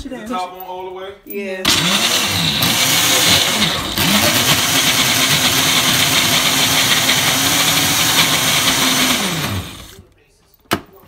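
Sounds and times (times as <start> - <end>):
blender motor running: 1.7 - 10.0.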